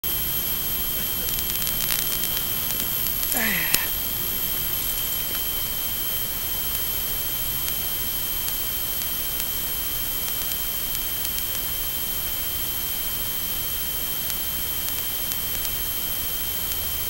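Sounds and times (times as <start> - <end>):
electronic hiss: 0.0 - 17.0
thin high whines: 0.1 - 7.5
faint ticks: 1.0 - 6.9, 10.2 - 11.7, 14.2 - 15.8.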